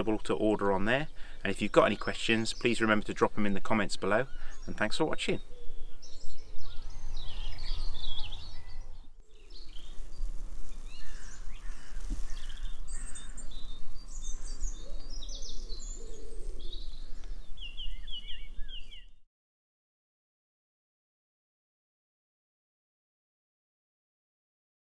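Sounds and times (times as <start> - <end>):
birds chirping and calling: 0.0 - 19.2.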